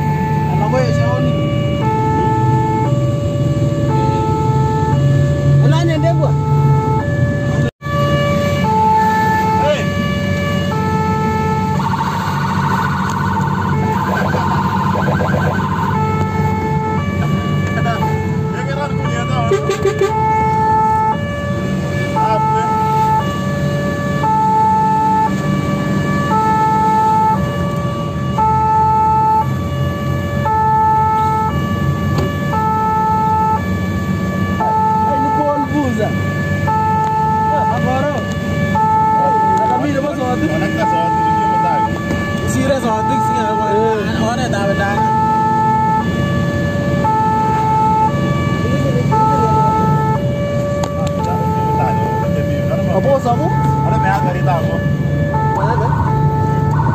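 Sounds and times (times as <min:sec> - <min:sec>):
truck engine and tyres rumbling: 0:00.0 - 0:56.9
two-tone siren: 0:00.0 - 0:56.9
truck engine running: 0:09.9 - 0:35.0.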